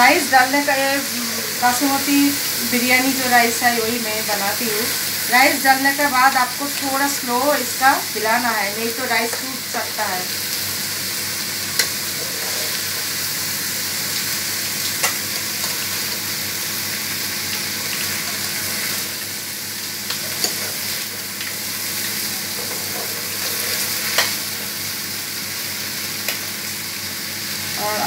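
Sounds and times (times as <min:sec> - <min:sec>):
frying sizzle: 0:00.0 - 0:28.0.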